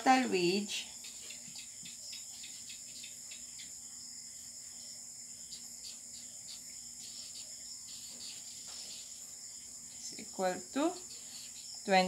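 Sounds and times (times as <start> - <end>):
marker scratching on paper: 5.8 - 9.3.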